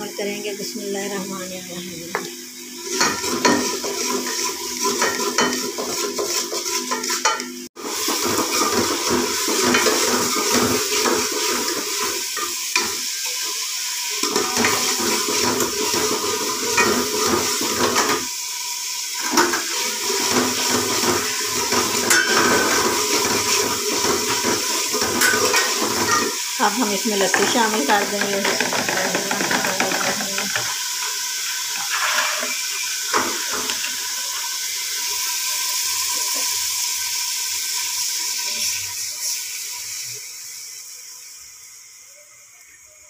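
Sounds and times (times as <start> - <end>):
food sizzling in oil: 0.0 - 43.0
metal spoon scraping a pot: 31.8 - 32.6.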